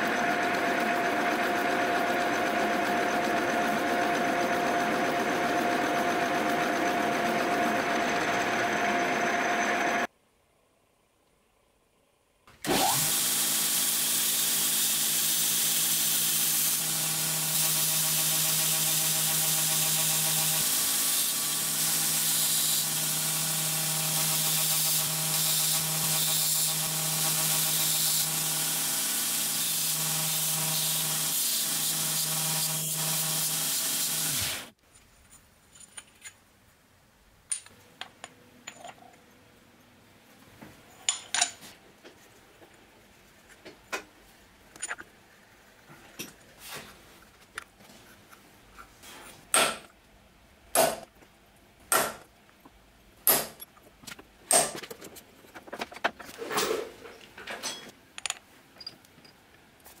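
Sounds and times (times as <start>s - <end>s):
motor hum: 0.0s - 10.1s
belt grinder grinding metal: 12.6s - 34.7s.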